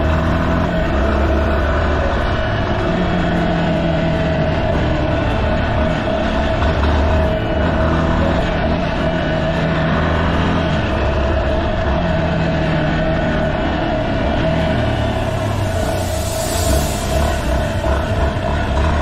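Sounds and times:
motorcycle engine running: 0:00.0 - 0:19.0.

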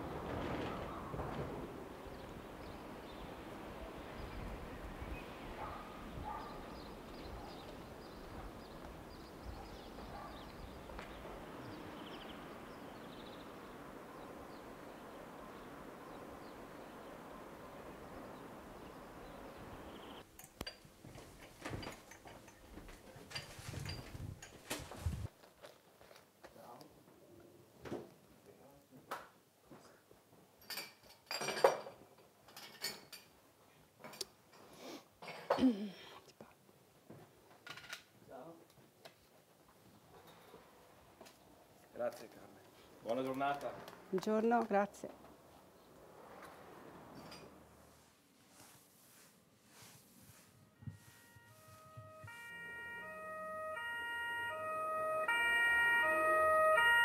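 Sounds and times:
low background hiss: 0:00.0 - 0:25.3
small birds chirping: 0:02.0 - 0:20.3
crockery and cutlery clinking: 0:30.6 - 0:33.4, 0:47.1 - 0:47.6.

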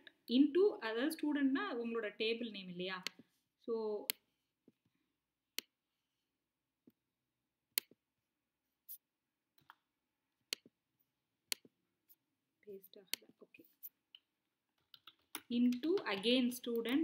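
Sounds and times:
keyboard and mouse clicks: 0:07.8 - 0:08.0, 0:09.6 - 0:09.8, 0:10.5 - 0:10.8, 0:11.5 - 0:11.7, 0:13.1 - 0:17.0.

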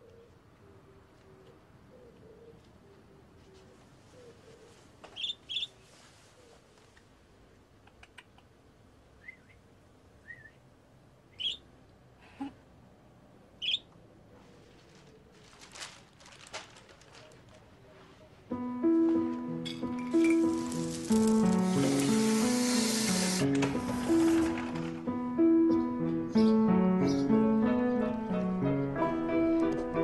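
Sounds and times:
budgerigar chirping: 0:05.2 - 0:05.7, 0:11.3 - 0:11.7, 0:13.6 - 0:13.9
rustling: 0:14.3 - 0:18.4, 0:19.1 - 0:25.1
music with held notes: 0:18.5 - 0:30.0.

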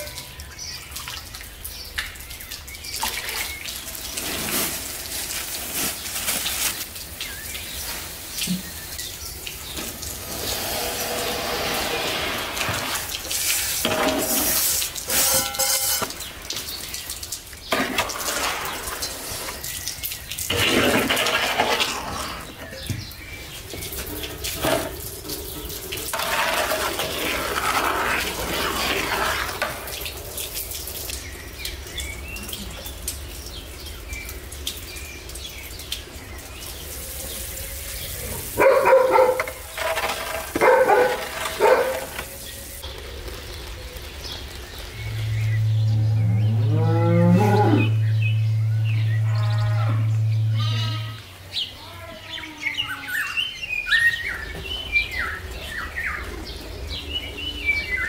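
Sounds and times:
skimmer scraping metal basin: 0:09.6 - 0:16.4, 0:17.7 - 0:19.6, 0:20.5 - 0:30.0, 0:38.9 - 0:42.3
animal calls: 0:45.4 - 0:53.4.

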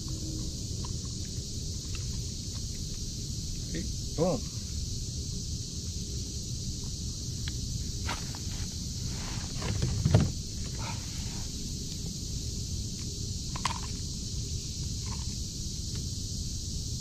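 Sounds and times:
dull thump: 0:08.0 - 0:08.7, 0:09.4 - 0:10.4.

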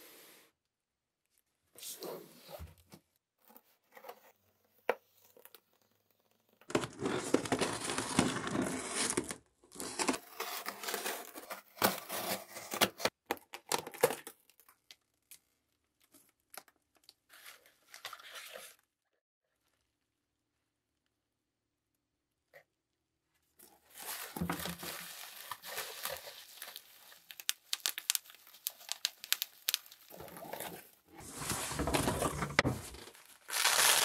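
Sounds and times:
cardboard rustling: 0:06.7 - 0:13.1, 0:23.9 - 0:34.0
plastic wrap crinkling: 0:23.9 - 0:31.0, 0:33.0 - 0:34.0
tape tearing: 0:24.7 - 0:30.6, 0:33.5 - 0:34.0.

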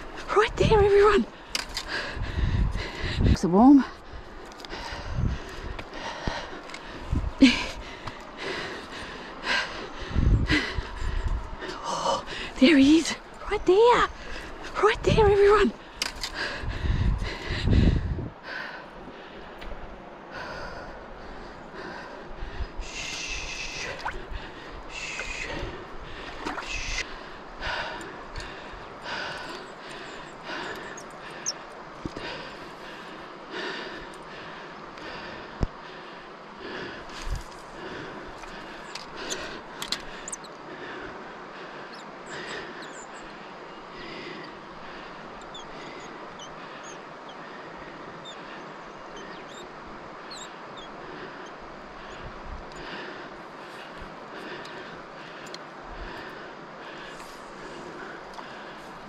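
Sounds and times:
high chirping calls: 0:49.1 - 0:49.7, 0:50.3 - 0:50.9.

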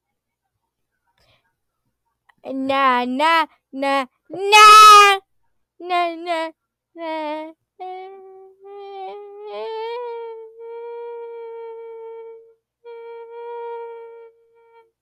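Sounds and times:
person humming goofy tone: 0:05.9 - 0:15.0.

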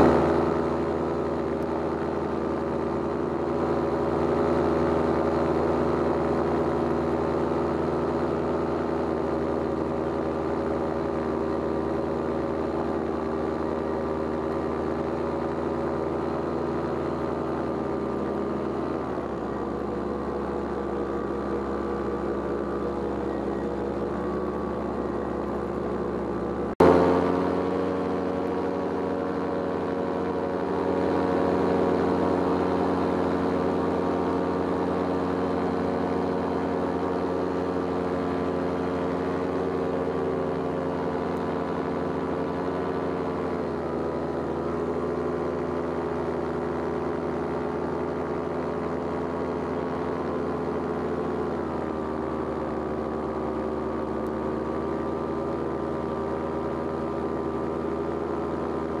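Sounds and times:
paramotor engine and propeller: 0:00.0 - 0:59.0.

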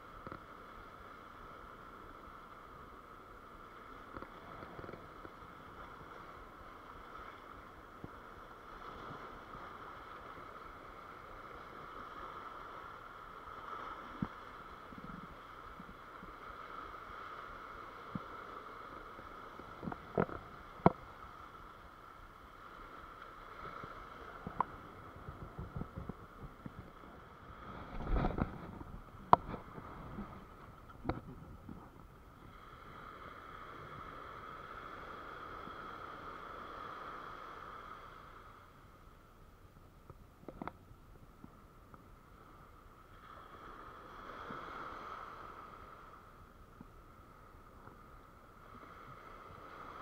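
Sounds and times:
surf washing against rocks: 0:00.0 - 0:38.8.

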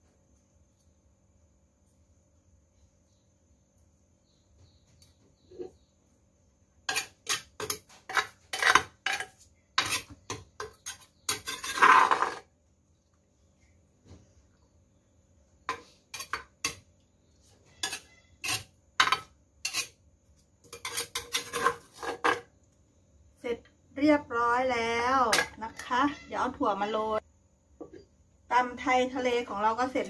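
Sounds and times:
metal spoon clinking on dishes: 0:17.8 - 0:20.0.

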